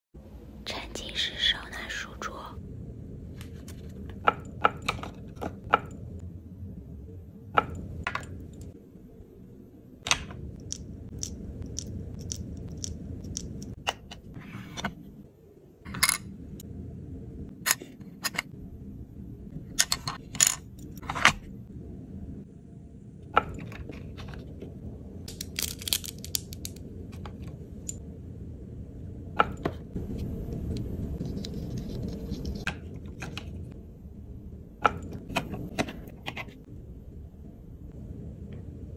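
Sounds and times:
small plastic pieces clicking: 25.3s - 26.8s.

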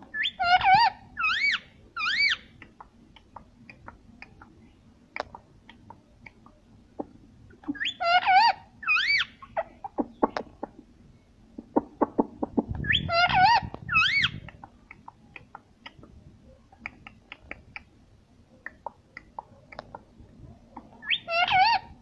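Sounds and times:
parakeet calls: 0.2s - 2.5s, 7.7s - 10.3s, 12.8s - 14.5s, 21.0s - 22.0s
sharp clicks and taps: 2.6s - 4.6s, 18.6s - 20.0s.

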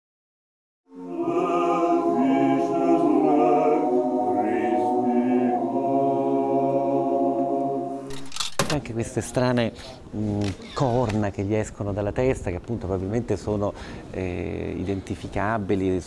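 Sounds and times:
unaccompanied chant-like singing: 0.9s - 8.1s.

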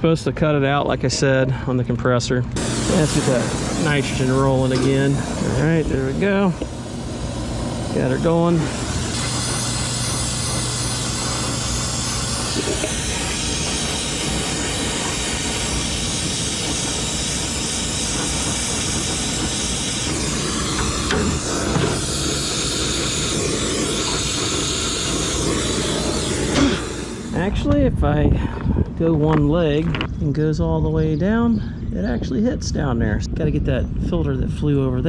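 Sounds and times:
torch flame hissing: 2.6s - 28.4s.

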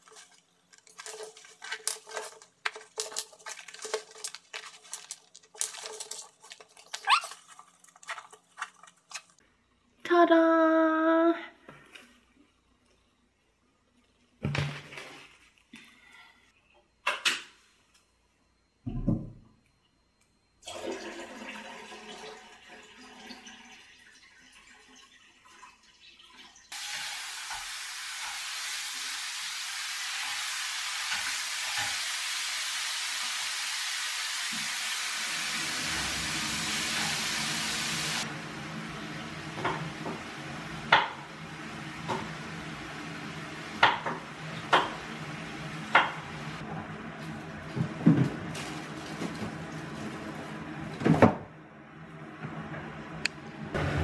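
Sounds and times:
meat sizzling in a pan: 26.7s - 38.3s.

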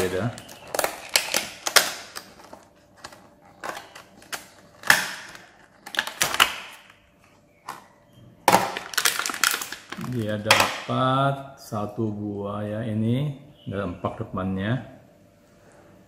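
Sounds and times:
plastic packaging crinkling: 0.0s - 7.9s, 8.5s - 10.8s.

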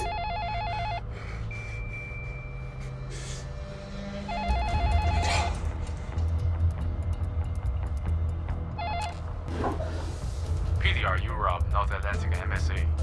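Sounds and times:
telephone ringing with electronic trill: 0.0s - 1.1s, 4.2s - 5.6s, 8.8s - 9.2s
steady low hum: 0.1s - 11.0s.

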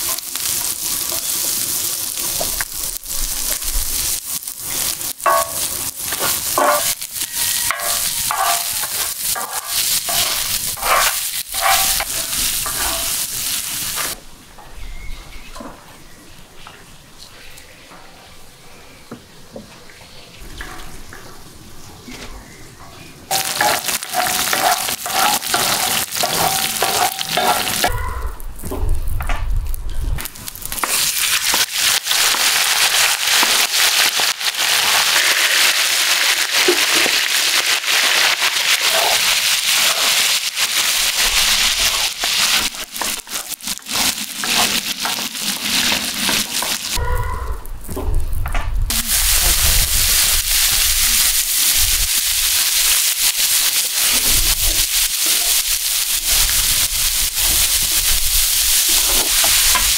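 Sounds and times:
meat sizzling in a pan: 0.0s - 14.2s, 23.3s - 28.0s, 30.2s - 47.0s, 48.9s - 59.9s
wooden spatula scraping a pan: 6.1s - 13.2s.

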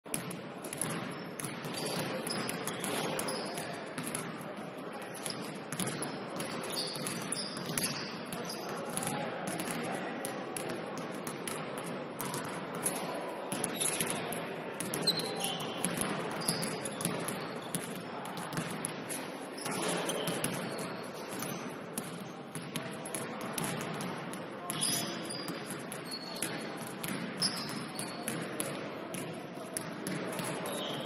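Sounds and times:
sneaker squeaks: 0.8s - 4.2s, 5.1s - 9.1s, 13.6s - 21.8s, 24.6s - 29.2s, 29.8s - 31.0s.

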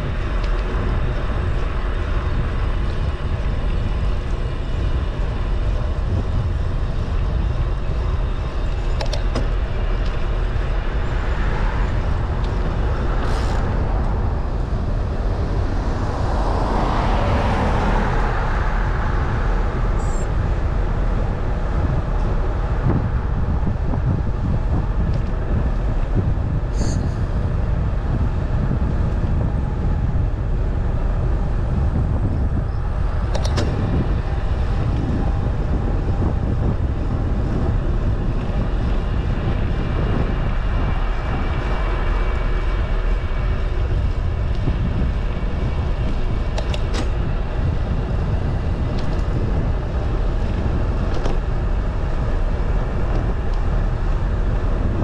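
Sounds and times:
vehicle road and wind noise: 0.0s - 55.0s.

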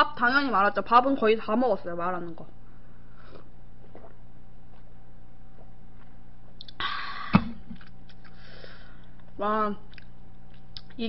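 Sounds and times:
steady low hum: 0.0s - 11.0s
breathy exhale: 8.3s - 9.0s.

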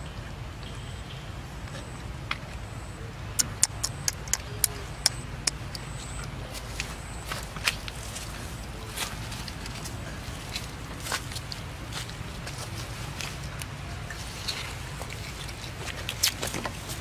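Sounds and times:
sharp clicks: 3.4s - 6.4s.

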